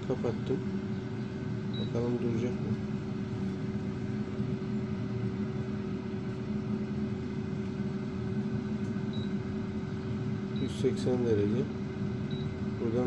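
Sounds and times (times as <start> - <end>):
air fryer fan humming: 0.0 - 13.0.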